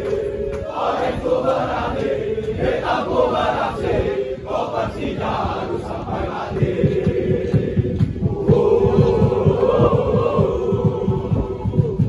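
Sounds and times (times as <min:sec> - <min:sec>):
crowd of men chanting: 0:00.0 - 0:12.0.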